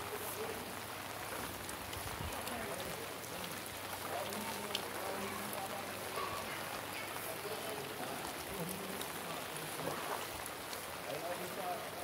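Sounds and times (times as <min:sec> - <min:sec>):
faint distant voices: 0:00.0 - 0:12.0
heavy rain hissing: 0:00.0 - 0:12.0.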